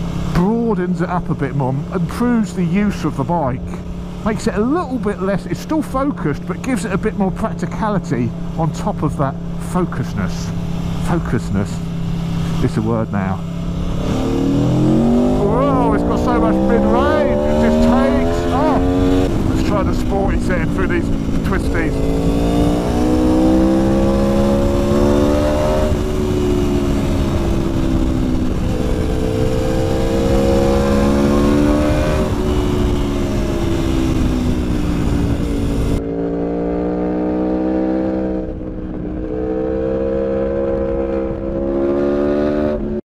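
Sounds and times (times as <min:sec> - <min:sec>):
motorcycle engine revving: 0:03.7 - 0:43.0.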